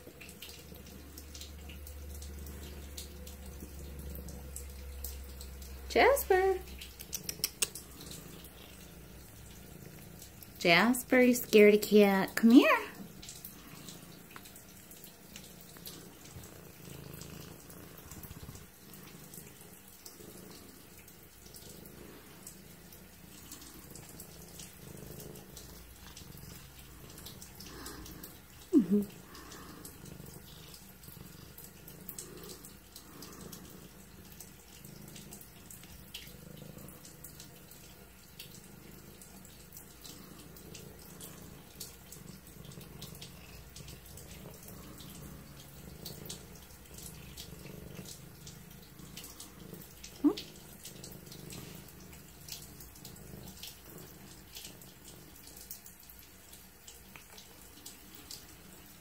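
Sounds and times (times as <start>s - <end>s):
cat purring: 0.0s - 59.0s.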